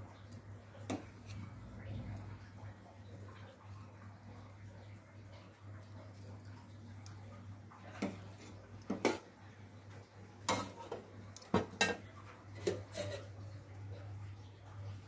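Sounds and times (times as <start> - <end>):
steady low hum: 0.0 - 9.9
metal pots and utensils clinking: 8.0 - 9.3, 10.4 - 13.4.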